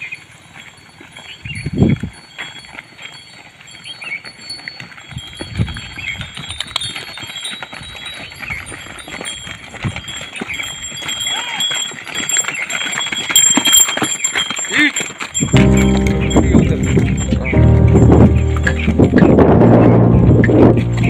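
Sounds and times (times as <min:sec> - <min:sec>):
hooves on dirt road: 0:00.0 - 0:21.0
low thumps: 0:15.5 - 0:21.0.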